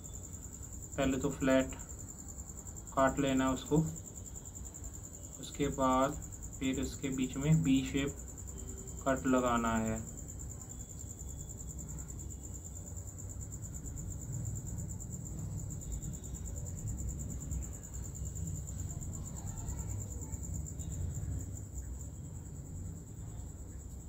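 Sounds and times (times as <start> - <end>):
crickets trilling: 0.0 - 24.0.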